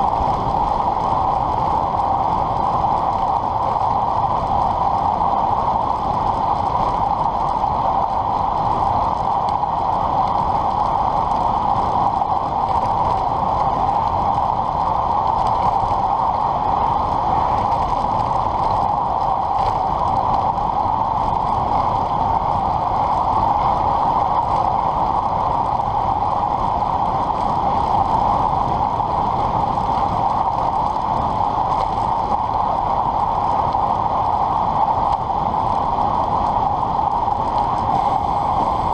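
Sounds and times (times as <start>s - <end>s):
bike tyre noise: 0.0s - 38.9s
wind rushing: 31.4s - 38.9s.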